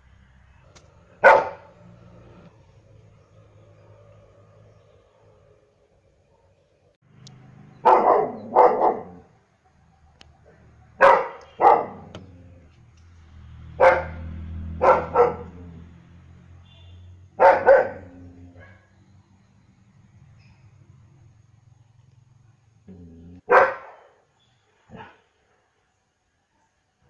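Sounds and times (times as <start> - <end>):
dog barking: 1.2 - 1.8, 7.8 - 9.3, 10.9 - 12.2, 13.8 - 15.7, 17.4 - 18.9, 23.4 - 24.2, 24.9 - 25.2.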